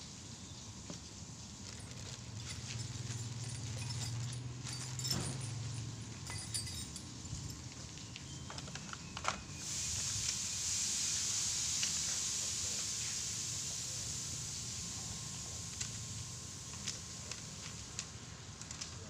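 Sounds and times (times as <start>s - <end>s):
plastic packaging rustling: 1.5s - 3.4s, 15.7s - 19.0s
plastic and metal parts clinking: 1.6s - 9.4s
steady hiss: 9.5s - 19.0s.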